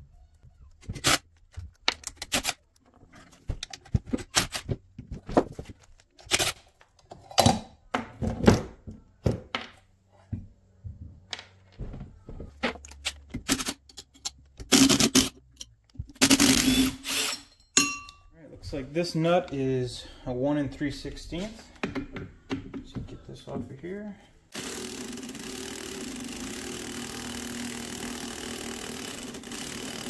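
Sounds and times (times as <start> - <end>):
metal tools knocking and scraping: 17.3 - 18.3.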